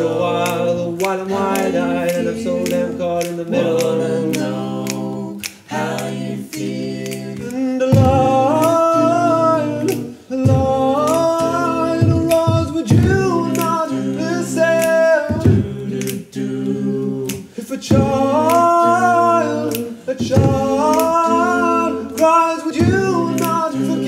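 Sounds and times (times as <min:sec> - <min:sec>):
male a cappella group singing: 0:00.0 - 0:24.0
sharp percussive clicks: 0:00.0 - 0:24.0.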